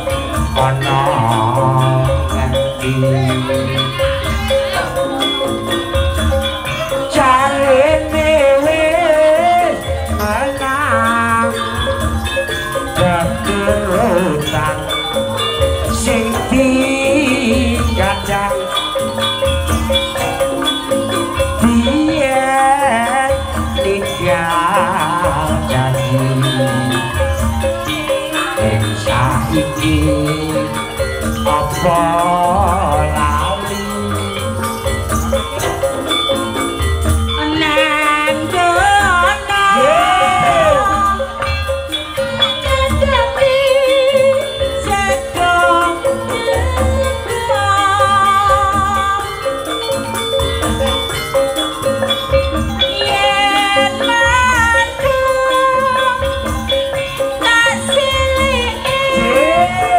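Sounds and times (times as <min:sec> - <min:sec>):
drum beats: 0:00.0 - 0:59.9
jingling percussion: 0:00.0 - 0:59.9
person singing high melody: 0:37.4 - 0:49.6, 0:57.4 - 0:59.9.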